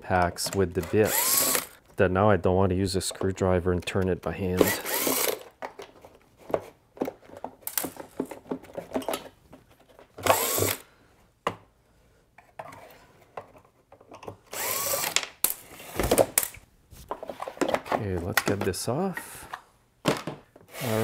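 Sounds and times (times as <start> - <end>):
cordless drill motor whining: 1.0 - 1.8, 4.6 - 5.4, 10.2 - 10.8, 14.5 - 15.2, 20.7 - 21.0.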